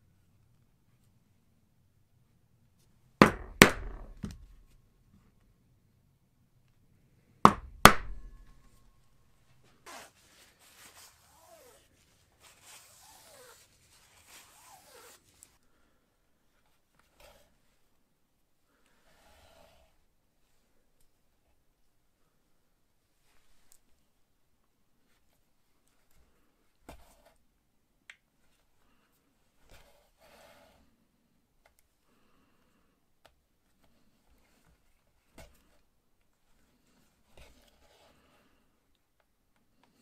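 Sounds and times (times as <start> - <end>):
faint handling and rubbing: 8.0 - 27.6, 28.3 - 40.0
thread swishing through leather: 9.7 - 15.6.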